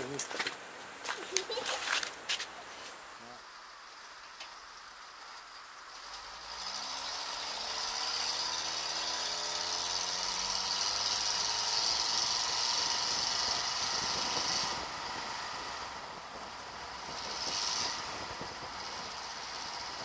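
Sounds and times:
truck engine revving: 5.8s - 20.0s.

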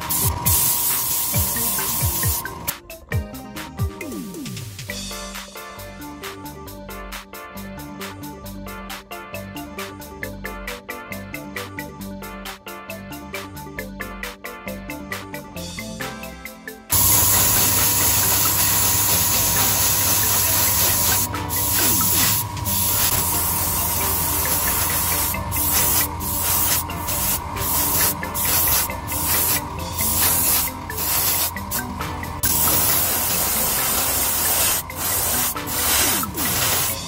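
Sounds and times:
airbrush spraying hiss: 0.0s - 2.7s, 16.9s - 37.0s
extraction fan hum: 0.0s - 2.7s, 16.9s - 37.0s.

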